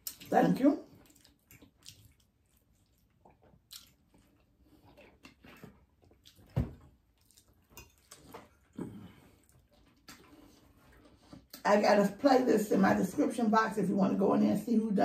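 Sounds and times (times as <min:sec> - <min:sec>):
chewing and mouth clicks: 0:00.0 - 0:11.6.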